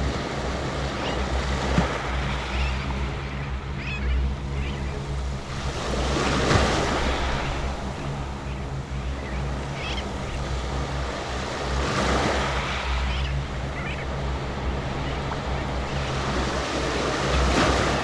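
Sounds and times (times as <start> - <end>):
small waves washing on sand: 5.3 - 8.5.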